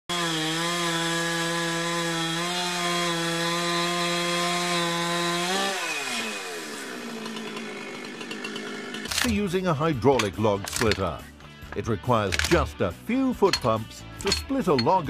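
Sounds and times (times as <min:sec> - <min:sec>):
chainsaw engine revving: 0:00.1 - 0:09.5.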